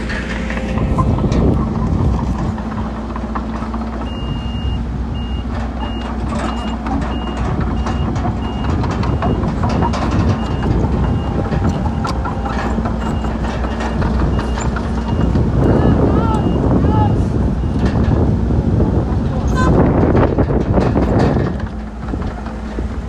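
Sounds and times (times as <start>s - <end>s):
metal clanks: 0.0s - 4.2s, 5.5s - 15.7s, 19.6s - 22.9s
diesel engine rumble: 0.0s - 23.0s
backup alarm beeping: 4.0s - 16.7s.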